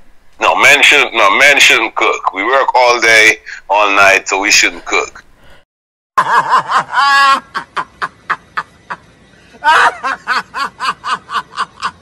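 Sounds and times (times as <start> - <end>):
man laughing hard: 6.2 - 12.0.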